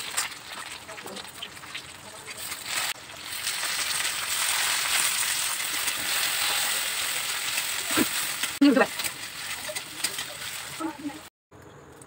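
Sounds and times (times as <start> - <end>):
food sizzling in hot oil: 0.0 - 11.3
metal spatula scraping a wok: 2.4 - 11.2.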